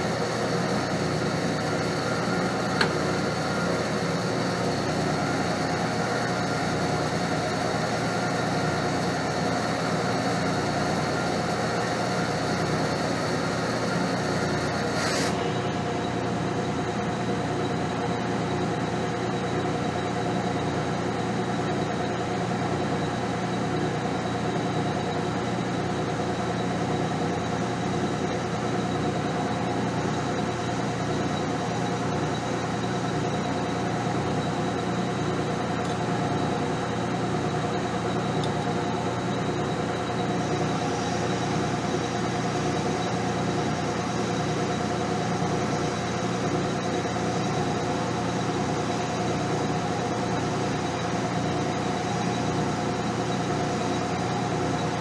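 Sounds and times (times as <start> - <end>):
metal lathe whining: 0.0 - 55.0
hiss of metal cutting: 14.8 - 15.7.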